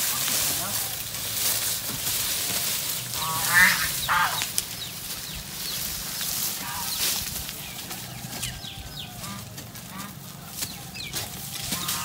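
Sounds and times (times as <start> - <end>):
chicken squawking: 3.1 - 5.0, 6.3 - 7.4, 11.6 - 12.0.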